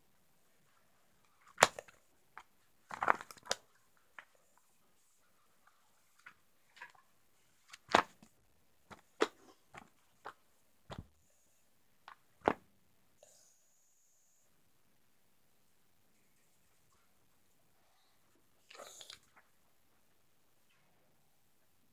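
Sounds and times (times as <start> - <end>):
faint high whine: 13.2 - 14.8.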